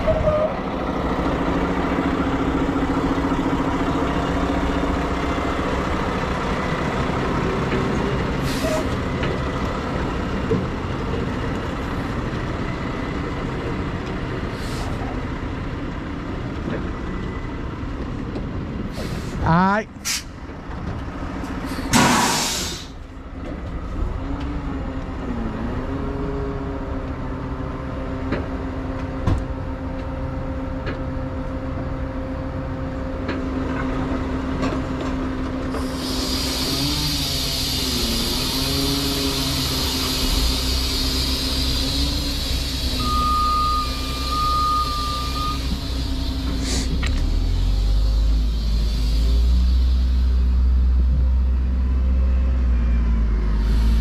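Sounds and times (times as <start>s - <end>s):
diesel engine running: 0.0s - 54.0s
air hiss: 21.8s - 23.0s, 35.8s - 43.0s, 45.8s - 47.1s, 48.0s - 50.6s.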